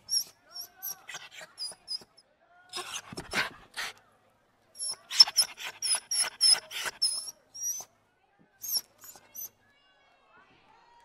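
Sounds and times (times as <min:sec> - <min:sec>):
puppy yapping: 0:04.8 - 0:07.8.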